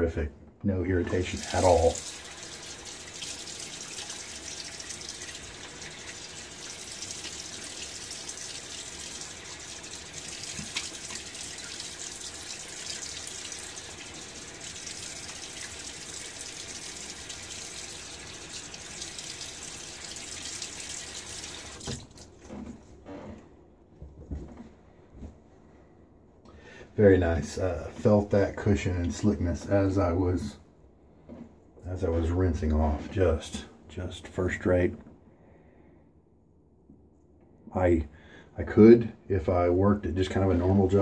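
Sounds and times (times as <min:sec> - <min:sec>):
sink tap running: 0:01.0 - 0:22.2.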